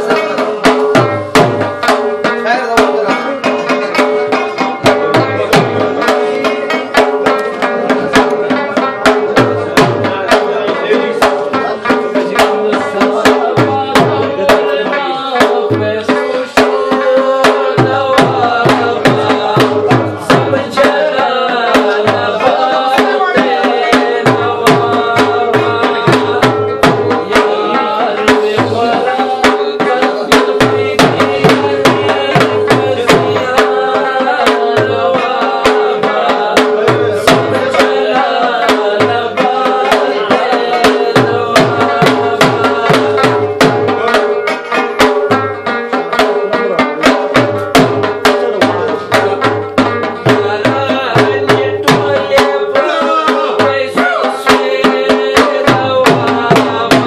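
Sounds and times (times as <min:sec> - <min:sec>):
plucked string melody: 0:00.0 - 0:30.0, 0:39.4 - 0:53.2.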